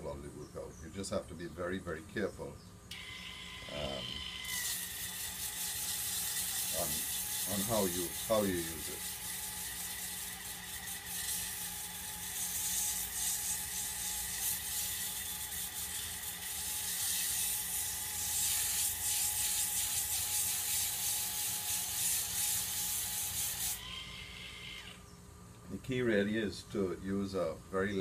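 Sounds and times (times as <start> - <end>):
sander motor hum: 2.9 - 25.0
sandpaper hissing on wood: 3.8 - 23.8.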